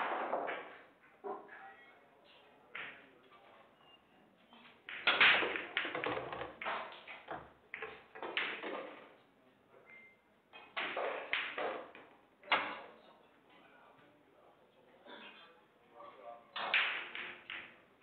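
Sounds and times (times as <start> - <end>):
pool balls clattering: 0.0 - 1.6, 2.8 - 3.2, 4.6 - 9.2, 10.5 - 13.0, 16.6 - 18.0
cue ball cracking into rack: 4.9 - 9.0.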